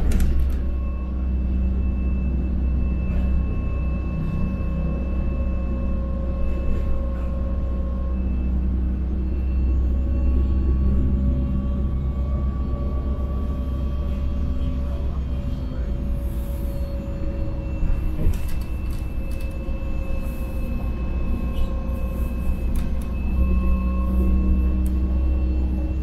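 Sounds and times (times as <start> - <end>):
bus body rattling: 0.0 - 0.9, 9.8 - 26.0
bus engine and road rumble: 0.0 - 26.0
faint whining tones: 0.0 - 26.0.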